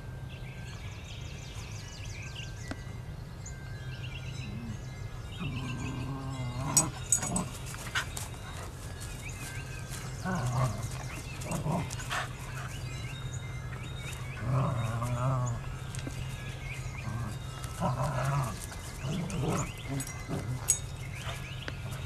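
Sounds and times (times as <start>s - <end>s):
dogs growling and whining: 4.3s - 8.8s, 10.0s - 22.0s.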